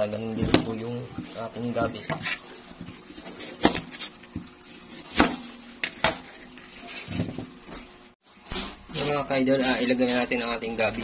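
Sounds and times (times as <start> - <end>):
knife chopping on plastic board: 3.2 - 5.4.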